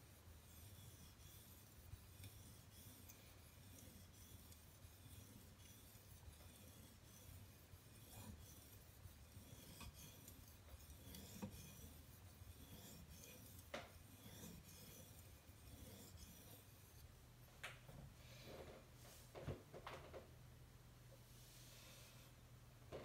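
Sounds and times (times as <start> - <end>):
knife scraping on whetstone: 0.0 - 17.0.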